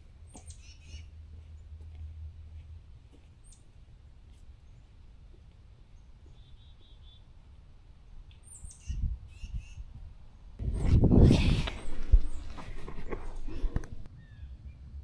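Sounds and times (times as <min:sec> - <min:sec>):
bird chirps: 0:00.3 - 0:01.1, 0:06.0 - 0:07.3, 0:08.3 - 0:09.9.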